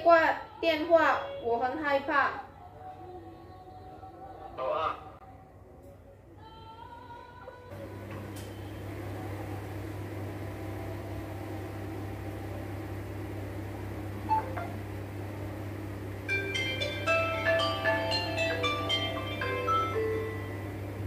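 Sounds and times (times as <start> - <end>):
low mechanical hum: 0.0 - 21.0
bright chiming music notes: 16.3 - 20.8.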